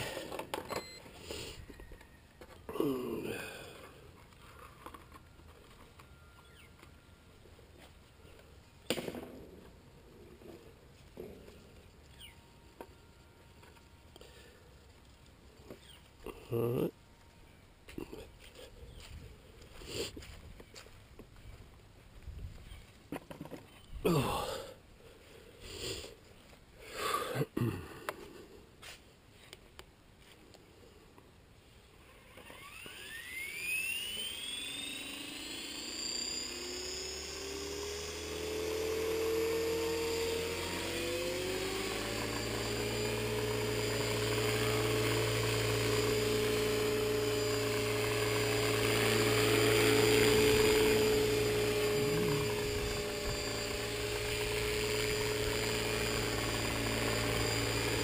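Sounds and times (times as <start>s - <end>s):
rotor whir: 0.0s - 7.1s, 32.0s - 58.0s
motor and gears whine: 0.0s - 21.6s, 32.0s - 58.0s.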